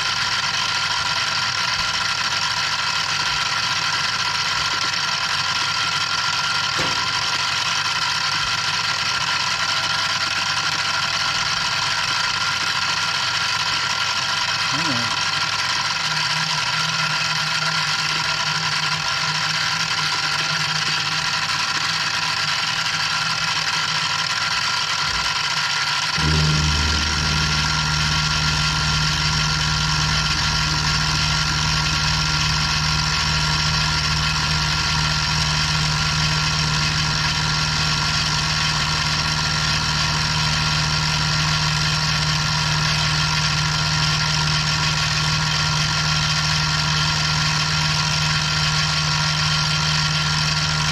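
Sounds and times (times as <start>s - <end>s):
milling machine motor whine: 0.0s - 50.9s
deep hum: 26.2s - 50.9s.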